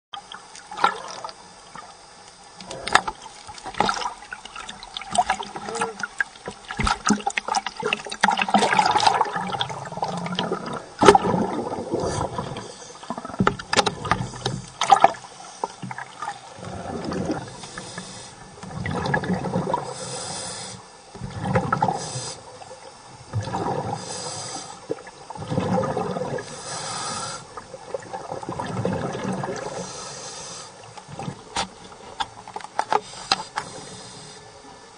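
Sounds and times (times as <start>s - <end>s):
gurgling exhaled bubbles: 0.2s - 20.3s, 21.1s - 30.1s
regulator hiss on inhale: 11.9s - 13.2s, 14.0s - 15.9s, 17.4s - 18.6s, 19.8s - 21.1s, 21.8s - 22.8s, 23.8s - 25.0s, 26.4s - 27.7s, 29.6s - 31.0s, 32.8s - 34.8s.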